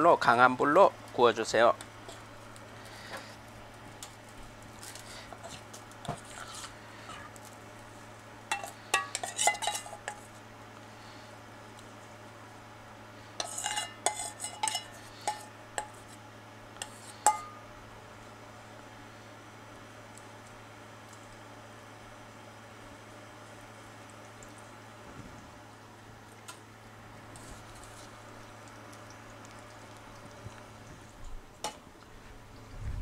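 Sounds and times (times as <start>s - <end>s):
low steady hum: 0.0s - 33.0s
metal spoon clinking on bowl and pan: 8.5s - 10.2s, 13.4s - 16.0s, 16.8s - 17.6s.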